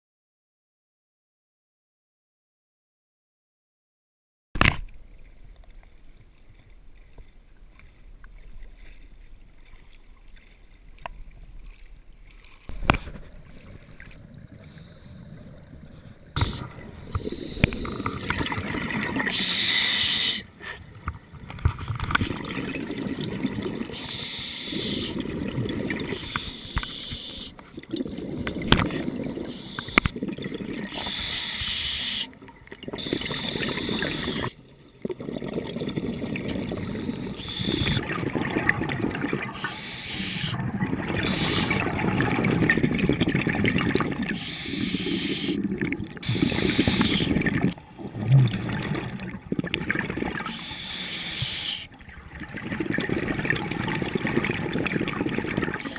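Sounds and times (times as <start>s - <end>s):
exhaled bubbles gurgling underwater: 12.6s - 55.9s
hissing regulator inhalations: 16.4s - 18.6s, 19.2s - 20.8s, 23.9s - 25.2s, 26.1s - 27.6s, 29.4s - 30.2s, 30.9s - 34.6s, 36.8s - 38.1s, 39.5s - 40.6s, 41.2s - 42.0s, 44.3s - 45.6s, 46.2s - 47.5s, 50.4s - 51.9s.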